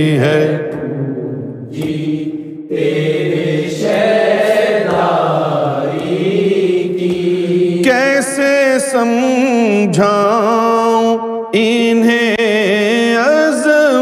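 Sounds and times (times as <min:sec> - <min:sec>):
man singing slow long notes: 0:07.7 - 0:14.0.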